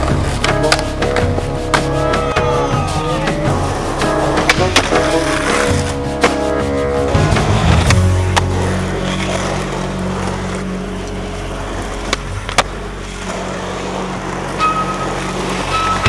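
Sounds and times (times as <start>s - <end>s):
skateboard landing: 0.0s - 2.6s, 3.3s - 16.0s
skateboard wheels rolling on asphalt: 0.0s - 16.0s
skateboard tail pop: 4.4s - 6.4s.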